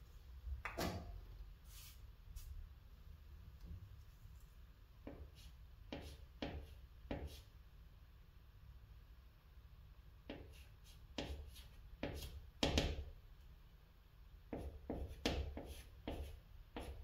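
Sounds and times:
chalk scratching on chalkboard: 0:05.0 - 0:07.5, 0:10.3 - 0:12.9, 0:14.5 - 0:17.0.

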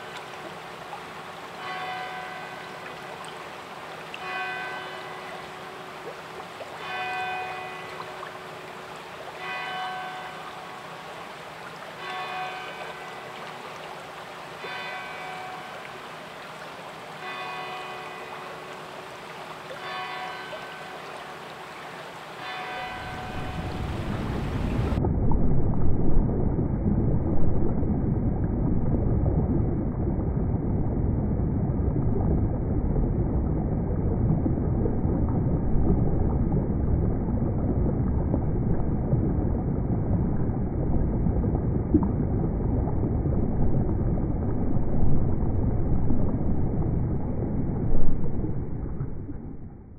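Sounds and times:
babbling stream: 0:00.0 - 0:25.0
fast-flowing river water: 0:00.0 - 0:25.0.

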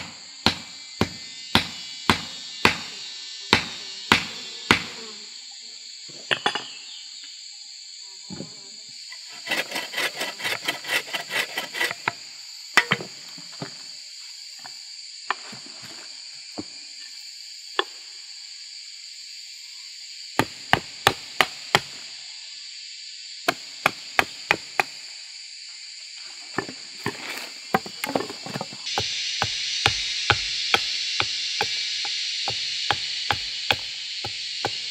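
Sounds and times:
blade chopping wooden pole: 0:00.0 - 0:02.9, 0:03.5 - 0:05.0, 0:09.5 - 0:12.1, 0:20.4 - 0:21.9, 0:26.6 - 0:31.8, 0:32.5 - 0:34.9
high insect drone: 0:00.0 - 0:34.9.

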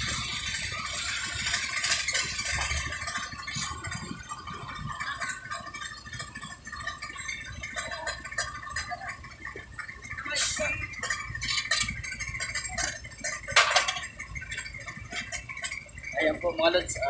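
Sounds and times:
clatter and scraping: 0:00.0 - 0:17.0
diesel engine rumbling: 0:00.0 - 0:17.0.

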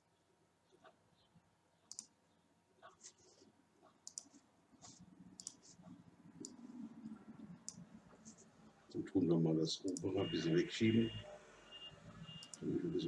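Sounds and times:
computer mouse clicks: 0:01.9 - 0:02.2, 0:03.8 - 0:08.5, 0:09.9 - 0:10.1, 0:12.3 - 0:12.7.

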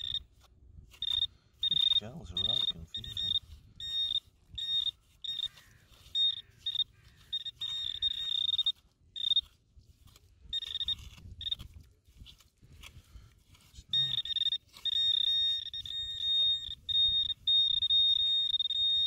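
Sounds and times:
high-pitched pinpointer beeping: 0:00.0 - 0:00.3, 0:00.9 - 0:09.5, 0:10.5 - 0:11.7, 0:13.9 - 0:19.0.

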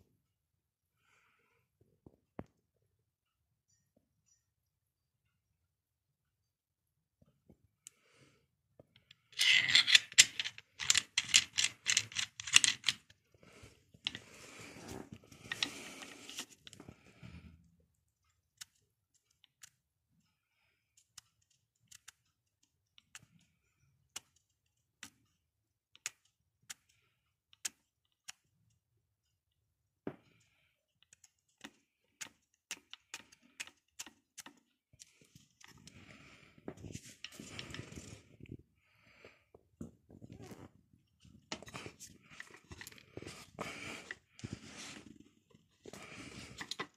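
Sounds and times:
clicking and rattling of tool parts: 0:09.0 - 0:13.2, 0:41.4 - 0:46.9.

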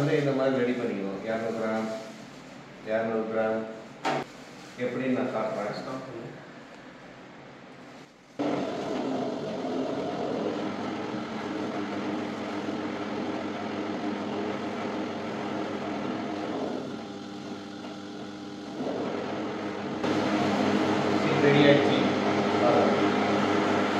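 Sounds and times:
dough sheeter motor humming: 0:08.4 - 0:23.9.

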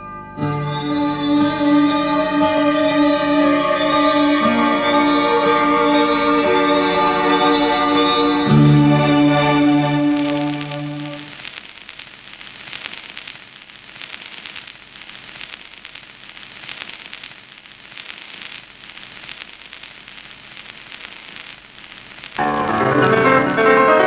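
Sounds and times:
sustained musical chord: 0:00.0 - 0:11.3
record crackle and pops: 0:00.4 - 0:24.0.

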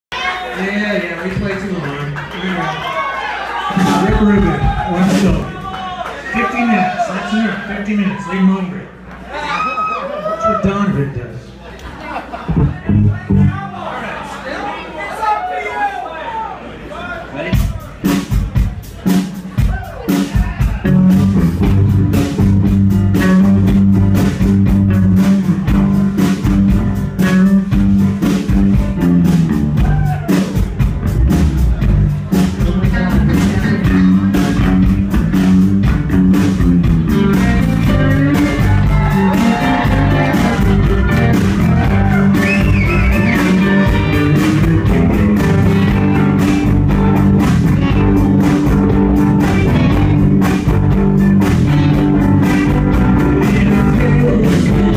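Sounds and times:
drums beating: 0:03.6 - 0:06.6, 0:12.4 - 0:13.8, 0:17.4 - 0:54.9
electric guitars: 0:30.9 - 0:54.9.

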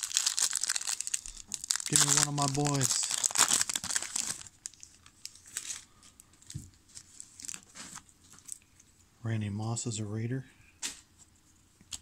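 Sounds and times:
wrapper crinkling: 0:00.0 - 0:08.6.

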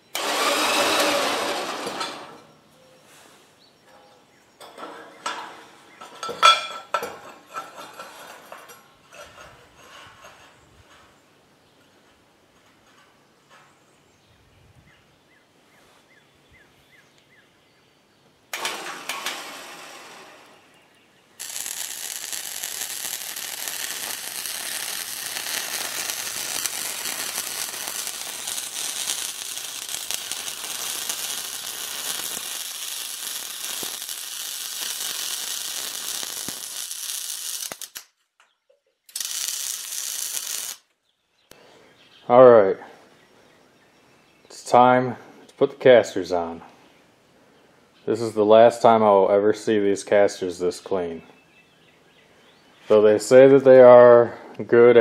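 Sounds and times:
welding arc crackling: 0:00.0 - 0:02.3, 0:18.5 - 0:20.8, 0:21.4 - 0:38.1, 0:39.1 - 0:40.9.

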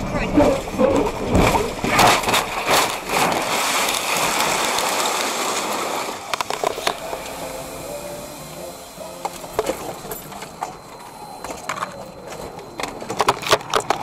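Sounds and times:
truck scraping along gravel: 0:00.1 - 0:14.0
debris clicking and crackling: 0:00.5 - 0:07.4, 0:09.2 - 0:14.0
gravel spraying: 0:01.9 - 0:11.8.

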